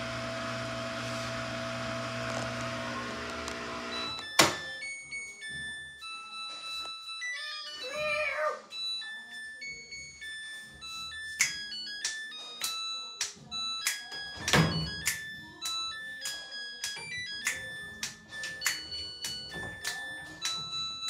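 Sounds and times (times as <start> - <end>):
washing machine humming: 0.0 - 4.2.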